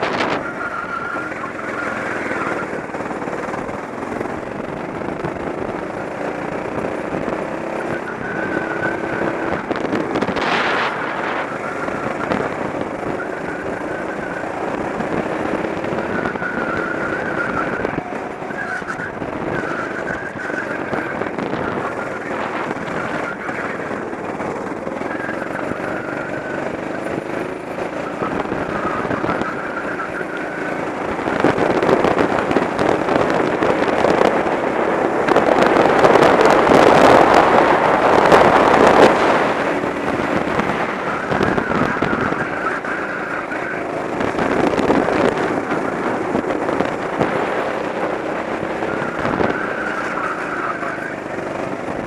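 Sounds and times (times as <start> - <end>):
go-kart engine revving: 0.0 - 52.0.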